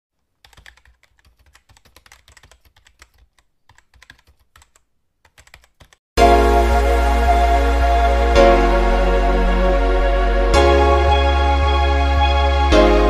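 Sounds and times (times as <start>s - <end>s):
keyboard typing clicks: 0.4s - 6.0s.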